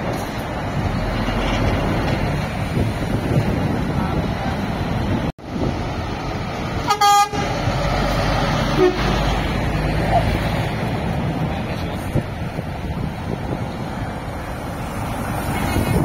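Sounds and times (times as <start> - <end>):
lorry diesel engine rumbling: 0.0 - 16.0
lorry horn toot: 6.8 - 7.6, 8.7 - 9.3.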